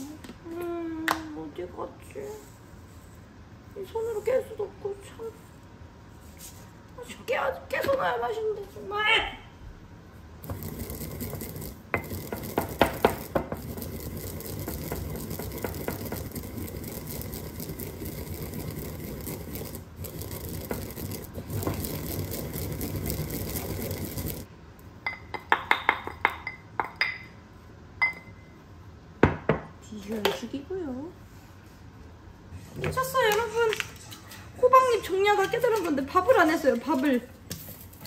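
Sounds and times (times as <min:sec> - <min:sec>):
pestle grinding in ceramic bowl: 0:10.4 - 0:24.5.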